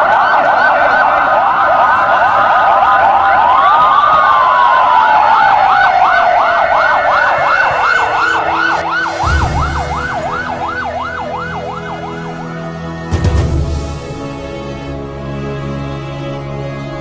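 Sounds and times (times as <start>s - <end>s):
siren yelping: 0.0s - 13.0s
siren tone gliding down: 0.3s - 12.9s
low sustained music tones: 8.0s - 17.0s.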